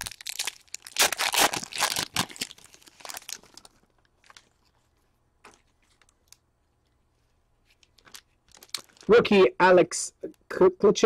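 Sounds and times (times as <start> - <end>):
foil wrapper crinkling and tearing: 0.0 - 4.7, 7.9 - 9.1.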